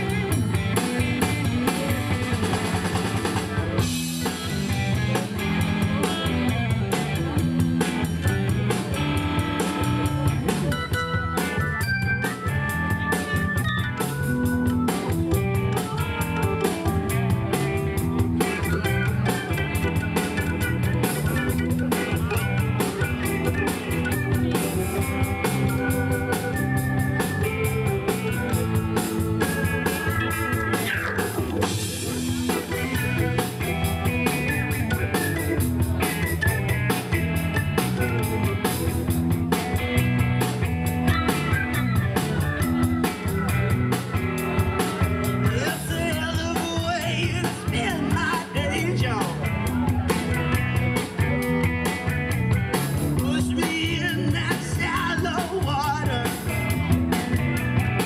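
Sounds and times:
drum kit: 0:00.0 - 0:58.0
electric guitar: 0:00.0 - 0:58.0
keyboards: 0:00.0 - 0:58.0.

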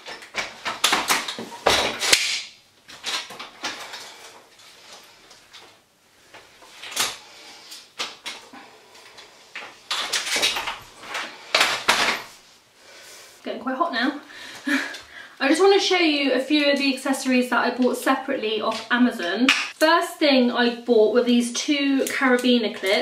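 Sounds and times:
pushchair frame clicks and rattles: 0:09.9 - 0:12.3.

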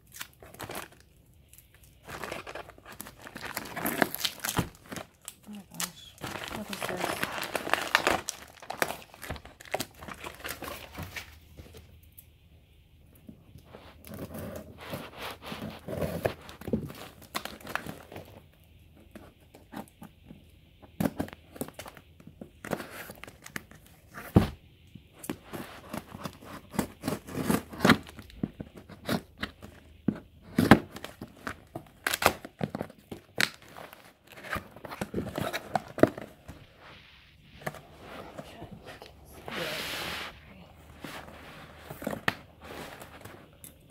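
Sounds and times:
packing tape tearing: 0:02.0 - 0:10.9, 0:25.8 - 0:28.3, 0:30.4 - 0:36.3.

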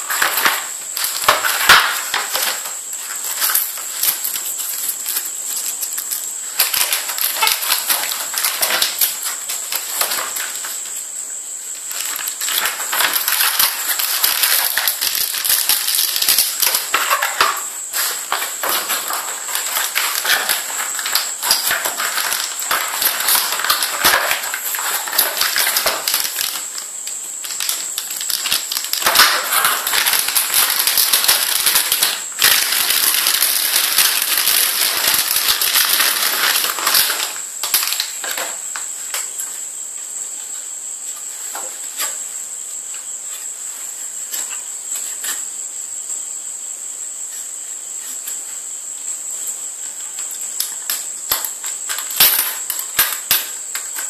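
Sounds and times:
hands crinkling packaging: 0:00.0 - 0:11.0, 0:11.8 - 0:38.5.

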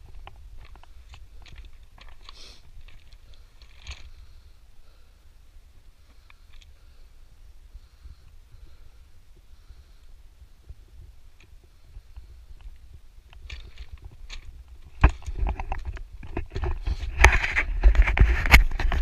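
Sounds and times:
footsteps on rocky path: 0:00.0 - 0:05.0, 0:07.8 - 0:19.0
wind rumble on microphone: 0:07.4 - 0:19.0.

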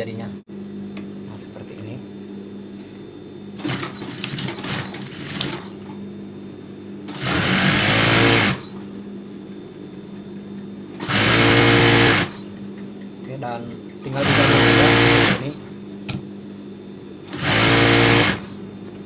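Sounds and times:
steady low hum: 0:00.0 - 0:19.0
sewing machine stitching: 0:03.6 - 0:05.7, 0:07.1 - 0:08.7, 0:11.0 - 0:12.4, 0:14.1 - 0:15.5, 0:17.3 - 0:18.5.

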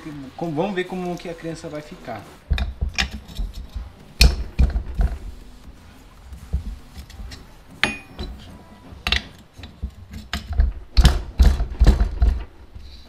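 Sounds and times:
metal clinks and knocks: 0:06.5 - 0:12.5.

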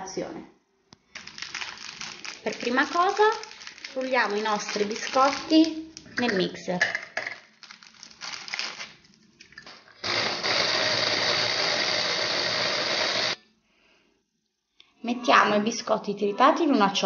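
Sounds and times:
hand blender chopper grinding: 0:10.0 - 0:13.4.

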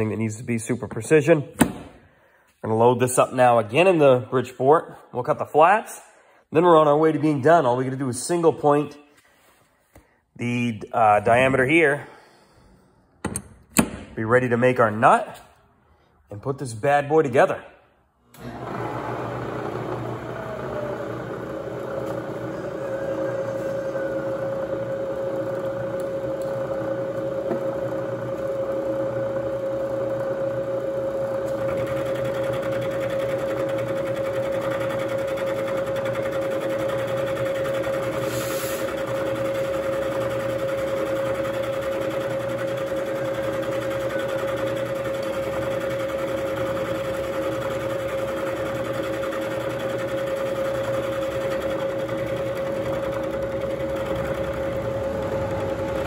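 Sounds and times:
end mill cutting metal: 0:18.4 - 0:56.0
milling spindle whine: 0:18.4 - 0:56.0.

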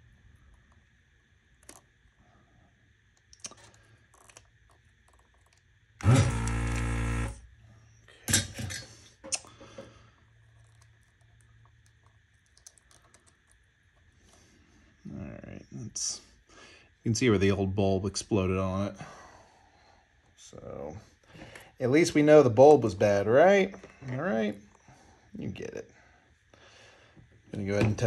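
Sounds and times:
vacuum pump motor hum: 0:05.0 - 0:07.6.

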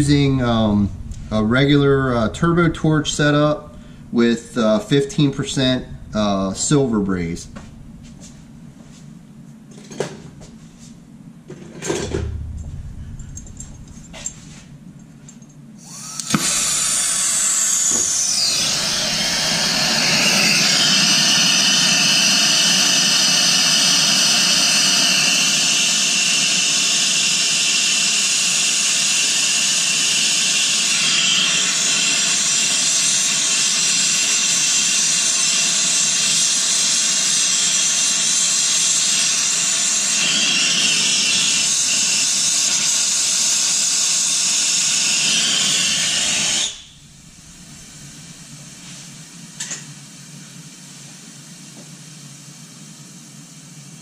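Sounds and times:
torch flame hissing: 0:00.0 - 0:08.8, 0:15.8 - 0:49.2.

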